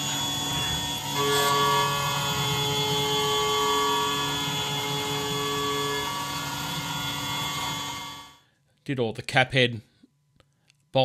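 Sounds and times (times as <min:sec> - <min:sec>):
milling machine whine: 0:00.0 - 0:08.4.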